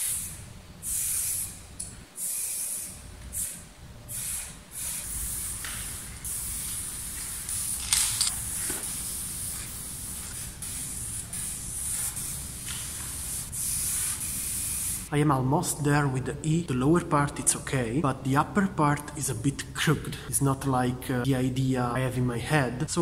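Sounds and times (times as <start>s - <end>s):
aerosol spray can hissing: 0.0s - 1.6s, 2.2s - 15.1s.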